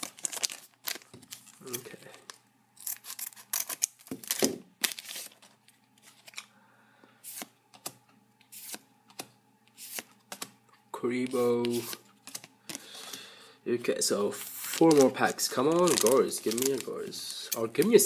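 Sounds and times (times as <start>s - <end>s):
cards rustling and clicking: 0.0s - 6.5s, 7.3s - 10.6s, 11.2s - 13.2s, 14.3s - 18.0s
foil wrapper crinkling: 0.0s - 6.5s, 14.3s - 18.0s
scissors cutting foil wrapper: 2.8s - 5.4s, 14.6s - 17.9s.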